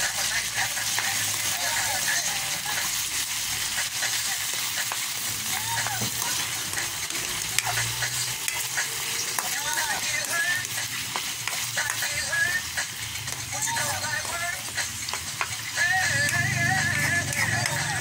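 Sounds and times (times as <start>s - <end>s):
food sizzling in hot oil: 0.0s - 18.0s
spatula scraping wok: 0.0s - 18.0s.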